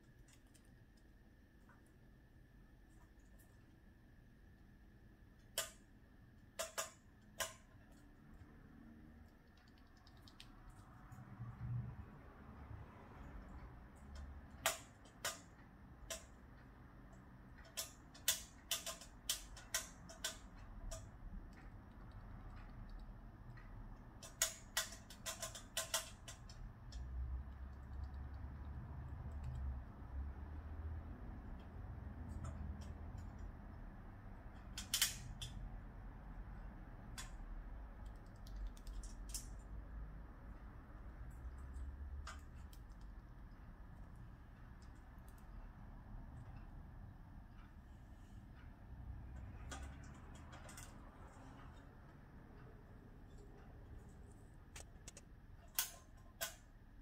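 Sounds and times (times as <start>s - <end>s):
rat claws scratching wire mesh: 24.2s - 28.5s.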